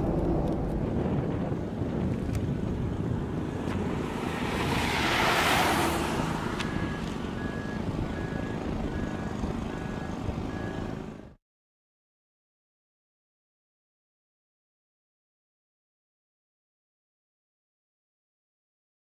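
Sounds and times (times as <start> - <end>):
wind on microphone: 0.0 - 11.0
rush of noise: 0.0 - 11.3
vehicle engine and road rumble: 0.0 - 11.4
faint high beep: 6.6 - 11.0.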